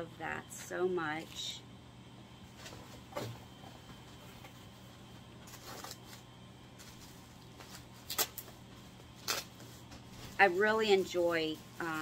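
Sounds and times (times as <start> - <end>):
low steady hum: 0.0 - 12.0
plastic package rustling: 5.4 - 8.6, 9.2 - 9.7.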